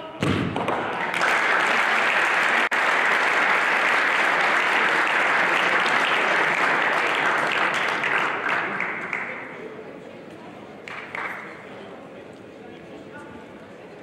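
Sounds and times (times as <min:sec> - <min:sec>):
spectators applauding: 0:00.6 - 0:09.6, 0:10.9 - 0:11.6.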